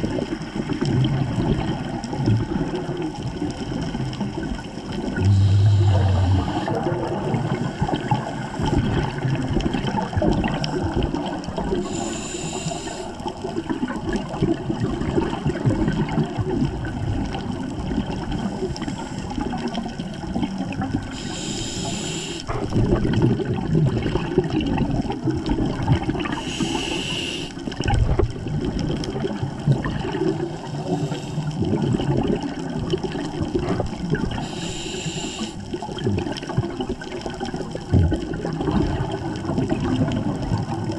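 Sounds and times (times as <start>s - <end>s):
exhaled bubbles gurgling: 0.0s - 40.9s
regulator hissing inhalations: 5.3s - 6.7s, 11.8s - 13.2s, 21.1s - 22.5s, 26.4s - 27.6s, 30.6s - 31.6s, 34.4s - 35.6s.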